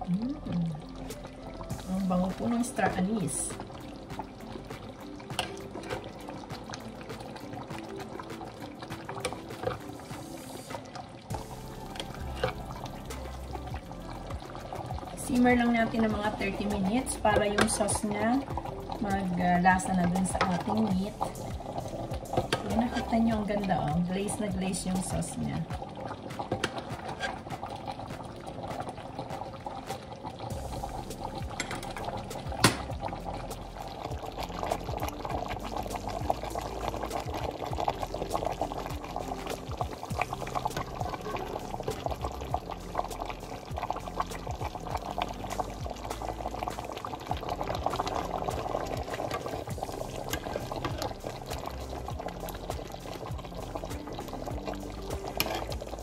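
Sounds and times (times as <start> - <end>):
sauce bubbling in a pot: 0.0 - 56.0
ladle pouring sauce: 25.8 - 56.0.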